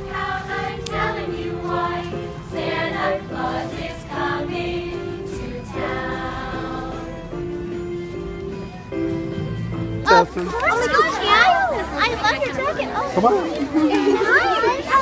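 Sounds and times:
group of voices singing: 0.0s - 7.6s
christmas music: 0.0s - 15.0s.

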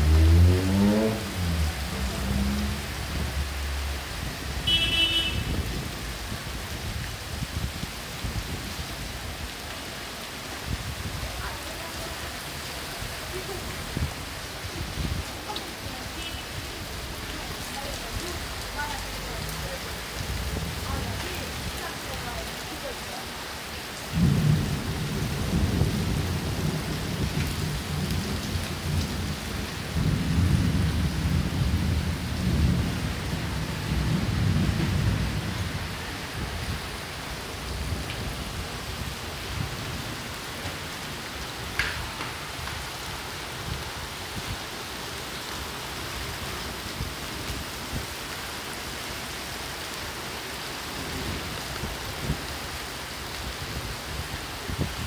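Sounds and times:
heavy rain: 0.0s - 55.0s
thunder rumbling: 24.1s - 36.9s.

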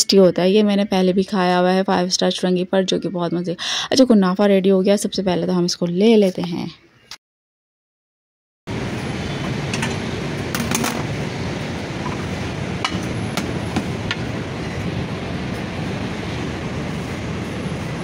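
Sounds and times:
busy food stall rumble: 8.7s - 18.0s.

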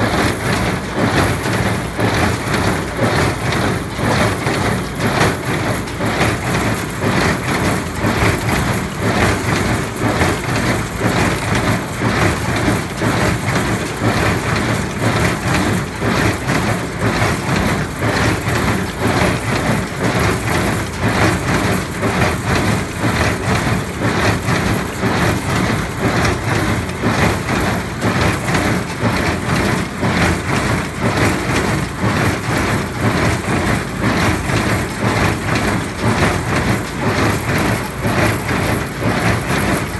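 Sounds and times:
hay baler clattering: 0.0s - 39.9s.

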